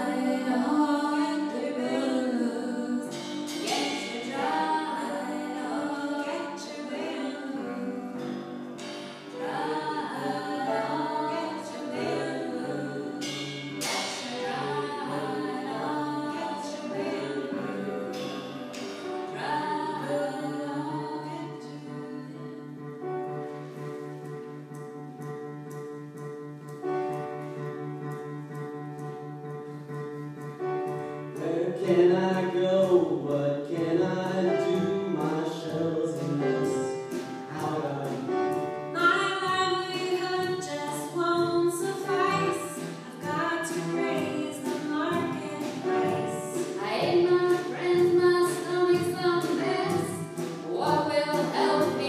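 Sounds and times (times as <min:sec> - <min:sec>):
group of voices singing: 0:00.0 - 0:22.8, 0:41.8 - 0:52.0.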